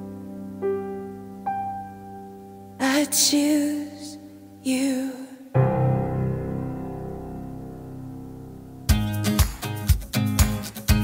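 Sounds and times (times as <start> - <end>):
strummed acoustic guitar music: 8.8 - 11.0.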